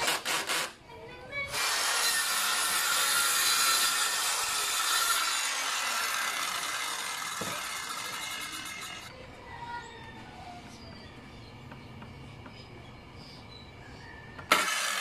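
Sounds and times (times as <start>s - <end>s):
circular saw cutting wood: 1.5s - 9.1s, 14.5s - 15.0s.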